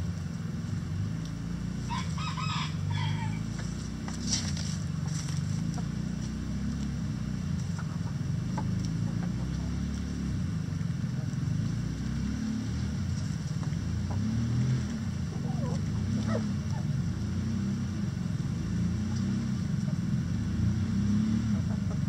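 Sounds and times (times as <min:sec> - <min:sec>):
chickens clucking: 0:05.0 - 0:06.1, 0:07.6 - 0:10.2, 0:13.5 - 0:14.4, 0:15.2 - 0:17.0, 0:21.5 - 0:22.0.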